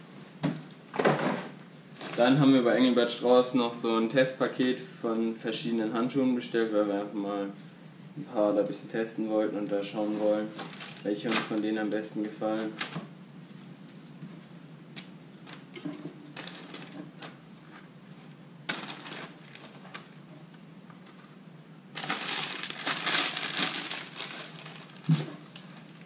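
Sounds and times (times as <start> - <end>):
plastic packaging crinkling: 10.6 - 13.0, 15.4 - 17.4, 18.7 - 20.1, 21.9 - 26.0.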